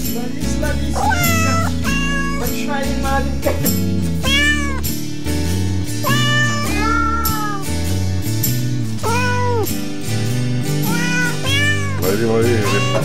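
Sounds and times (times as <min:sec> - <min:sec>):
background music: 0:00.0 - 0:13.0
cat meowing: 0:00.9 - 0:02.6, 0:04.2 - 0:05.0, 0:06.0 - 0:07.8, 0:09.0 - 0:09.8, 0:10.8 - 0:13.0.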